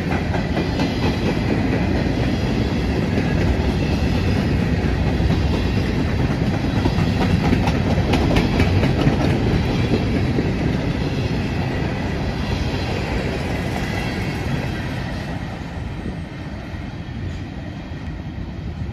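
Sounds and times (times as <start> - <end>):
train wheels rumbling on rails: 0.0 - 18.9
wheels clicking over rail joints: 3.2 - 10.7.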